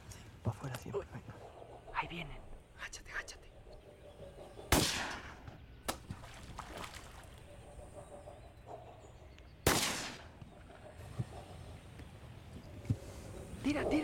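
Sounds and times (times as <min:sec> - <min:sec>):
shotgun shots: 0:04.7 - 0:06.0, 0:09.6 - 0:10.3.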